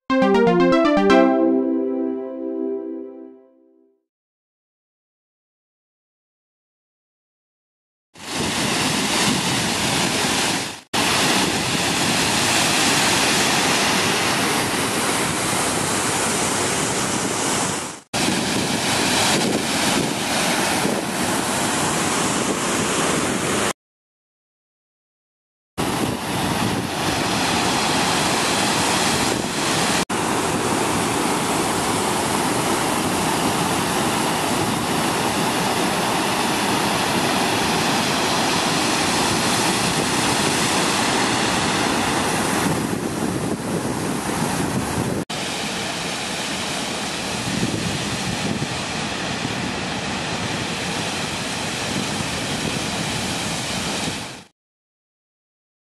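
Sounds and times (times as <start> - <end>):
water rushing over weir: 8.2 - 23.7, 25.8 - 54.3.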